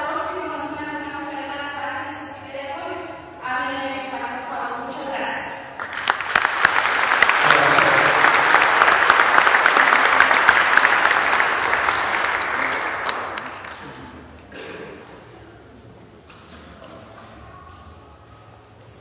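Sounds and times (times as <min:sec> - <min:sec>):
crowd applauding: 0:05.8 - 0:14.2.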